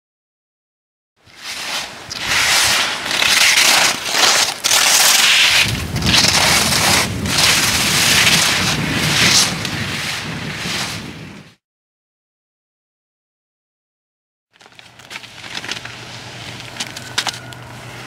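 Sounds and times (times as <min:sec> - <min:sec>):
ski edges scraping ice: 0:01.2 - 0:11.4, 0:14.7 - 0:18.0.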